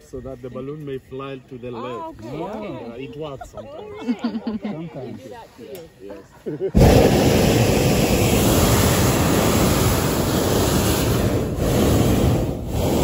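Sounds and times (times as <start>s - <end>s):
propane burner blasting: 6.8s - 13.0s.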